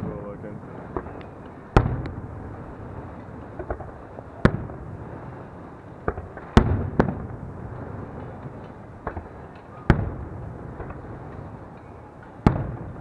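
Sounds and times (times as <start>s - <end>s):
firework shells booming: 0.0s - 13.0s
firework pops: 0.9s - 2.3s, 3.1s - 5.0s, 5.9s - 13.0s.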